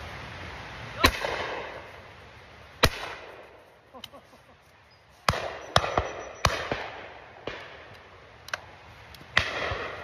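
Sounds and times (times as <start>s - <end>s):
shotgun shots echoing: 1.0s - 1.8s, 2.8s - 3.6s, 5.3s - 7.9s, 9.3s - 10.0s.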